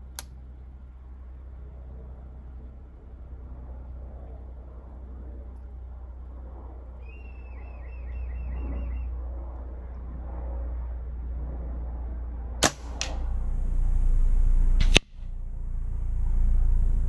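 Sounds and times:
bird chirping: 0:07.0 - 0:09.2
air rifle firing crack: 0:12.6 - 0:13.3.

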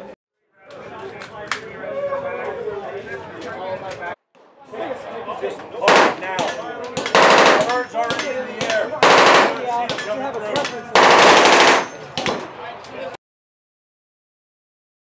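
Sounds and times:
people talking: 0:00.0 - 0:13.2
automatic gunfire bursts: 0:05.9 - 0:06.3, 0:07.1 - 0:07.8, 0:09.0 - 0:09.6, 0:11.0 - 0:12.0.

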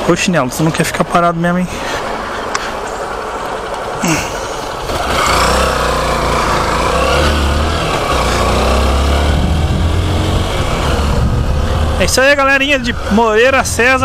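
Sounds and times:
motorcycle engine: 0:01.7 - 0:14.0
wind noise on microphone: 0:09.3 - 0:14.0.

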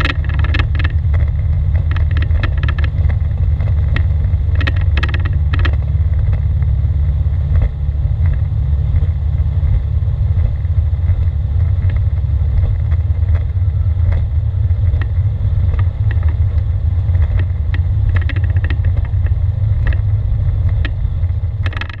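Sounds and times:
light clicks and rattles: 0:00.0 - 0:06.7, 0:11.7 - 0:22.0
aircraft engine and propeller drone: 0:00.0 - 0:22.0.

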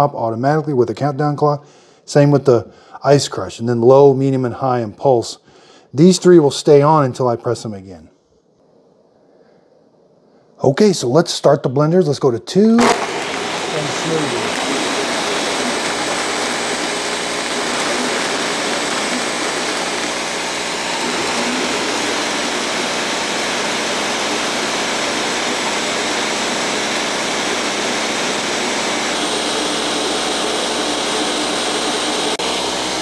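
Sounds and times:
blenders crushing ice: 0:12.8 - 0:33.0.

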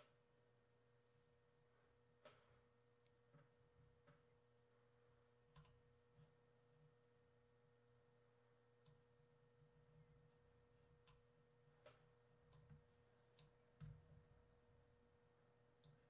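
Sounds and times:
faint electrical hum: 0:00.0 - 0:16.0
computer mouse clicks: 0:05.5 - 0:05.8, 0:11.0 - 0:14.0, 0:15.8 - 0:16.0.

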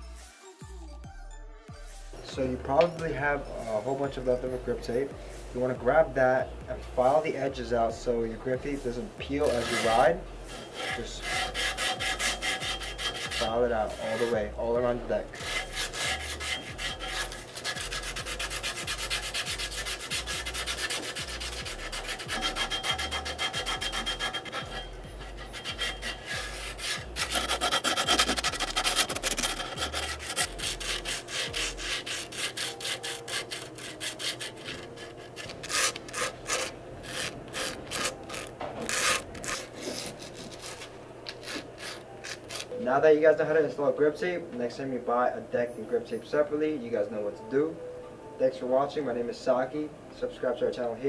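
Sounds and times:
grip tape scratchy sanding: 0:09.4 - 0:14.5, 0:15.3 - 0:42.8.

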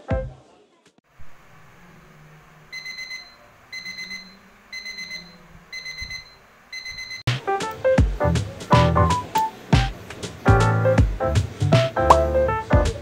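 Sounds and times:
kitchen timer alarm beeping: 0:02.7 - 0:07.3.

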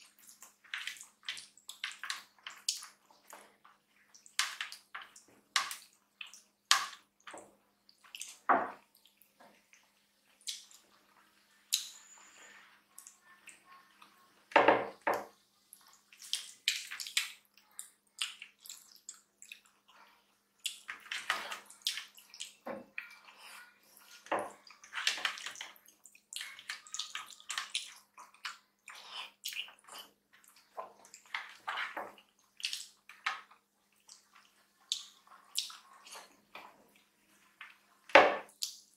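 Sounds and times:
wet squelches of food mixing: 0:00.0 - 0:38.9
chewing with lip smacks: 0:15.7 - 0:23.4, 0:24.0 - 0:37.8.

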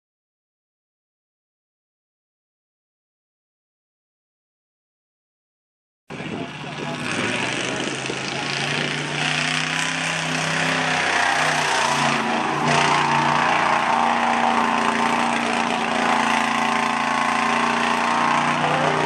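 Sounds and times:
truck engine revving high: 0:06.1 - 0:19.0.

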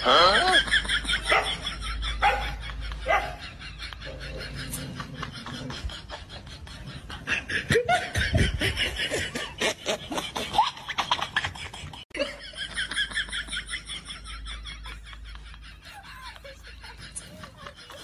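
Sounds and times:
high snickering laughter: 0:00.0 - 0:18.0
person laughing hard: 0:00.0 - 0:18.0.

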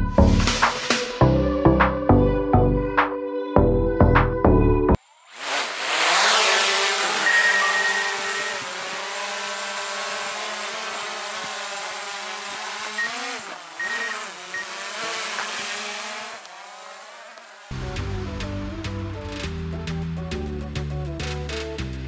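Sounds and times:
drone propellers buzzing: 0:05.4 - 0:19.6.

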